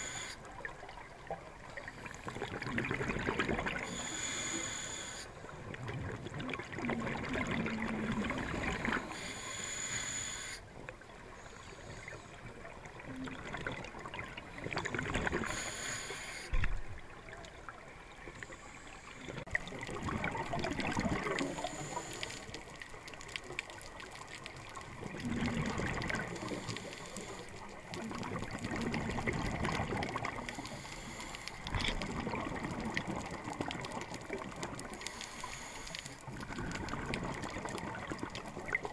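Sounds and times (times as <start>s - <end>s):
exhaled bubbles underwater: 0.0s - 4.2s, 5.4s - 9.2s, 12.1s - 15.6s, 19.3s - 30.8s, 31.5s - 35.2s, 35.9s - 38.9s
gurgling water: 0.0s - 4.6s, 5.3s - 9.7s, 10.6s - 38.9s.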